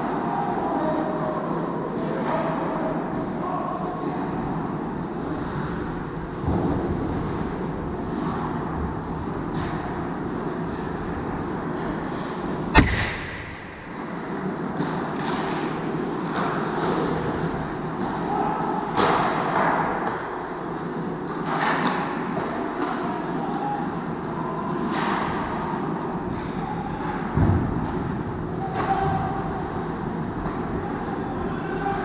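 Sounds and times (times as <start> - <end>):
loud sharp crack: 12.7 - 14.5
dull thud: 12.8 - 14.0.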